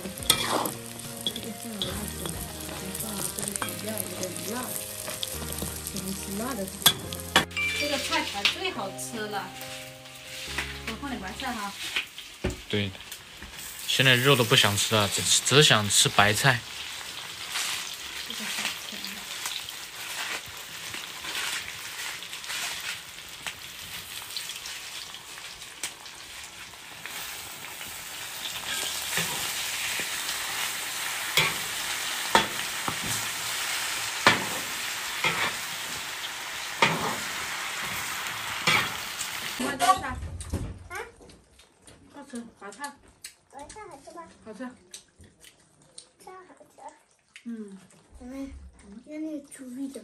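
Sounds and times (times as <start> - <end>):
food sizzling in a wok: 0.0 - 40.1
metal spatula scraping pan: 0.2 - 5.7, 28.6 - 30.2, 31.4 - 35.7, 36.8 - 39.0.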